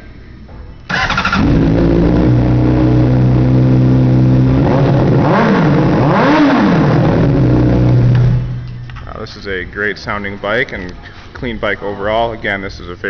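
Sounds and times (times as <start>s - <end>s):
motorcycle engine revving: 0.9s - 8.7s.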